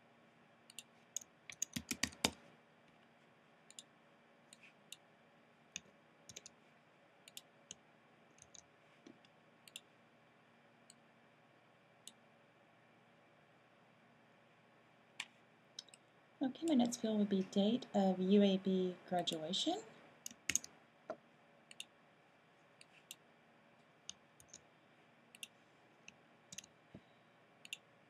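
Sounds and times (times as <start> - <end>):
keyboard and mouse clicking: 0.7 - 2.4, 3.7 - 3.9, 5.8 - 6.6, 7.3 - 8.7, 20.2 - 20.7, 21.7 - 21.9, 24.1 - 24.6, 26.5 - 26.7.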